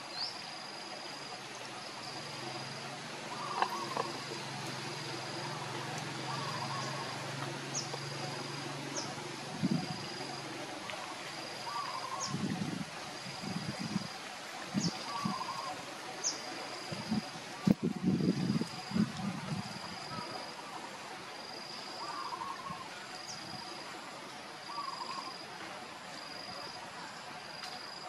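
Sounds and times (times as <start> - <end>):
high insect trill: 0.0 - 14.2
warbling bird call: 2.5 - 12.6, 14.8 - 16.4, 21.9 - 23.4, 24.7 - 25.4.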